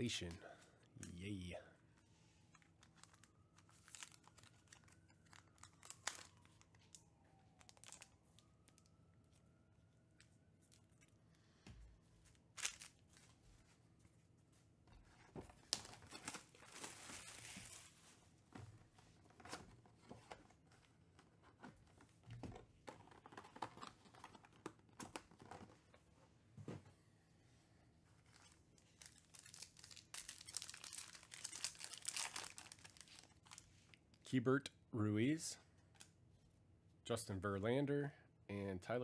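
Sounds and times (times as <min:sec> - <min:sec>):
foil wrapper crinkling and tearing: 0:02.6 - 0:06.9, 0:07.6 - 0:08.2, 0:12.5 - 0:13.1, 0:15.6 - 0:18.0, 0:28.3 - 0:33.7.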